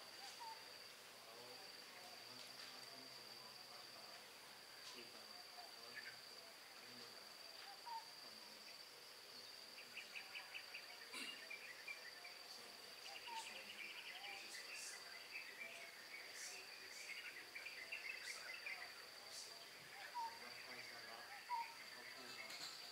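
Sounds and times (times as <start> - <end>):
insects chirping: 0.0 - 22.9
faint murmuring: 9.9 - 22.9.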